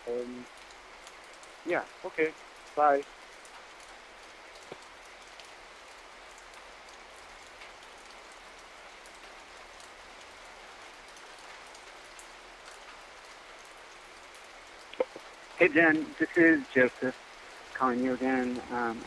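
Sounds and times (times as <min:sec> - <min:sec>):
faint hiss: 0:00.0 - 0:03.7, 0:14.8 - 0:19.0.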